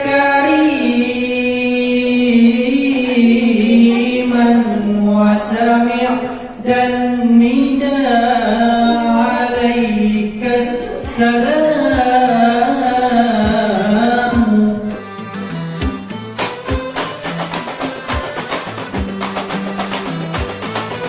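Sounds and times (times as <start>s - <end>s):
quick percussive taps: 15.5s - 21.0s.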